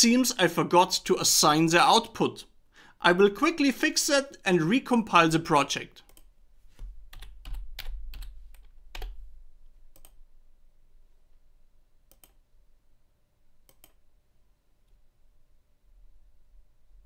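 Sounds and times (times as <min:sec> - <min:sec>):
computer keyboard typing: 0:06.1 - 0:06.3, 0:07.1 - 0:09.2, 0:09.9 - 0:10.2, 0:12.1 - 0:12.4, 0:13.7 - 0:14.0.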